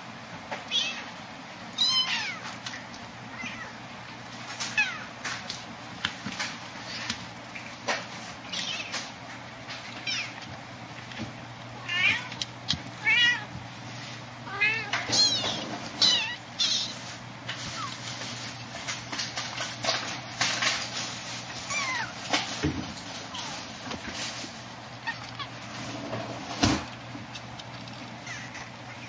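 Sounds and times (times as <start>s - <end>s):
kittens mewing: 0.7s - 2.6s, 3.2s - 5.5s, 14.4s - 18.2s, 24.9s - 25.7s.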